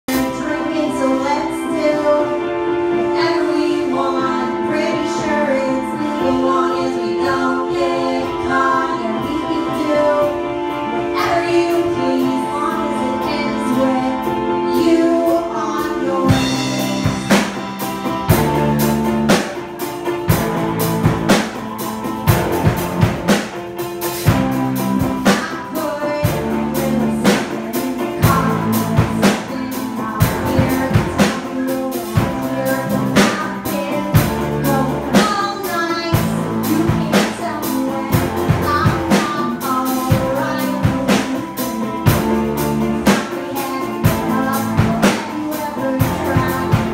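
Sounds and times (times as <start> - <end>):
bass guitar: 0.0 - 46.9
electric guitar: 0.0 - 46.9
keyboard: 0.0 - 46.9
drum kit beat: 0.1 - 2.4, 3.1 - 46.9
woman singing: 0.1 - 17.8, 24.3 - 46.9.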